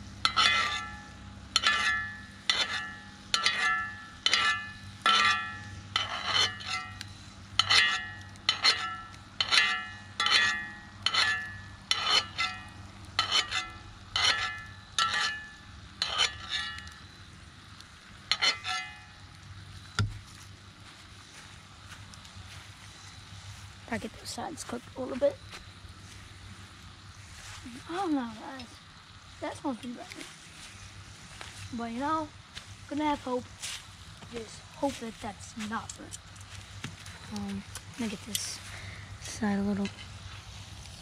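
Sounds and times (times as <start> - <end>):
metal utensil clinking on skillet: 0.2 - 7.0, 7.6 - 16.9, 18.3 - 19.0.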